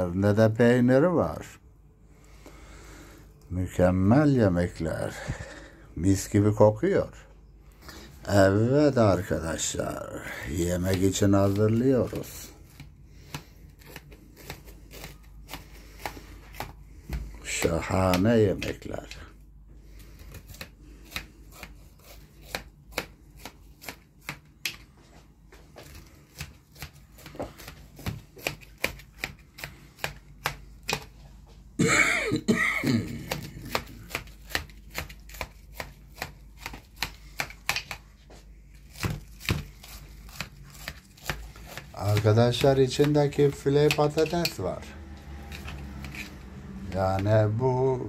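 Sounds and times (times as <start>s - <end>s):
knife crunching through crust: 10.8s - 19.1s, 19.8s - 24.6s, 32.8s - 38.0s, 38.8s - 46.4s.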